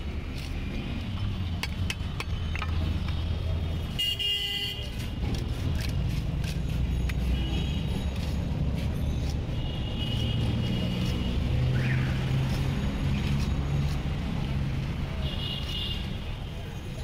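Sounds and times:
vehicle engines droning: 0.0 - 17.0
vehicle horn: 4.0 - 4.9
blade scraping fish scales: 4.8 - 14.4.

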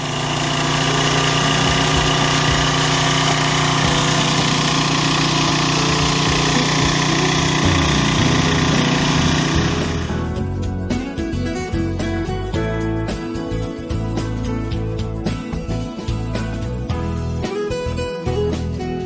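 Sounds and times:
pressure washer engine drone: 0.0 - 10.3.

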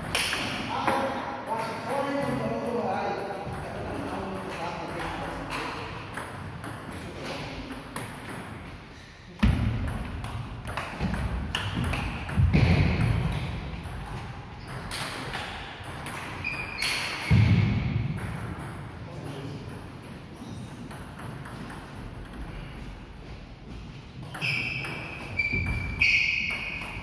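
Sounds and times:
short high squeaks: 16.4 - 17.3, 24.4 - 26.9.

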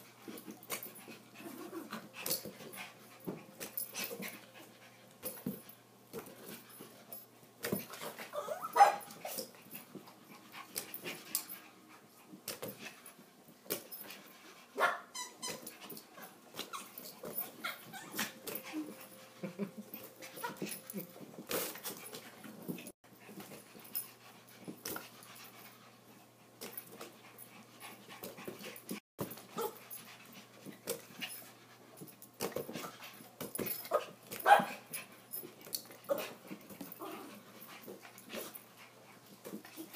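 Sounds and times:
dog cries growls and whimpers: 1.4 - 2.1, 8.2 - 9.5, 14.9 - 19.3, 36.0 - 37.5.

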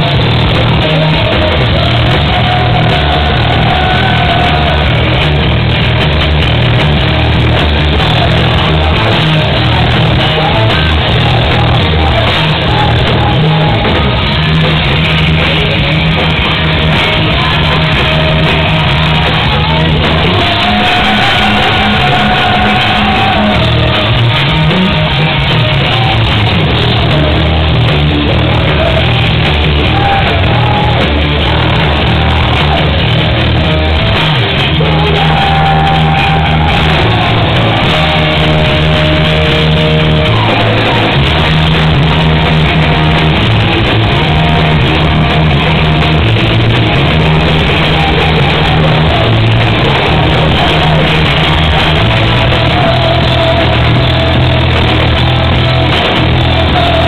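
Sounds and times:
person singing: 0.0 - 5.5, 7.1 - 57.0
live rock band playing: 0.0 - 57.0.

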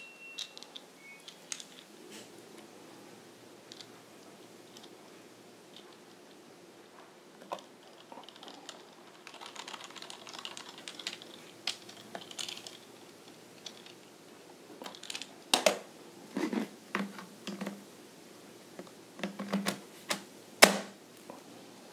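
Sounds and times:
plastic clicks and knocks: 16.9 - 17.8.

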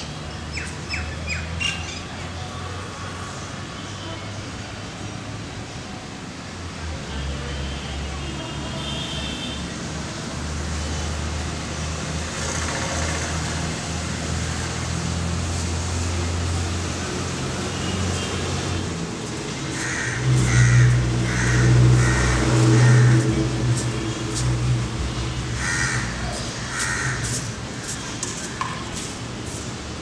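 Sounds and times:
low rumble of traffic: 0.0 - 30.0
nearby engine drone: 16.0 - 27.2
crows cawing: 19.7 - 23.3, 25.6 - 27.4.

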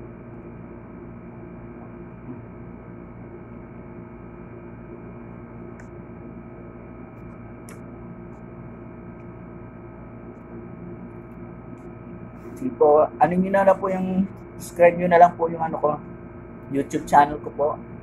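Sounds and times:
electrical hum with hiss: 0.0 - 18.0.

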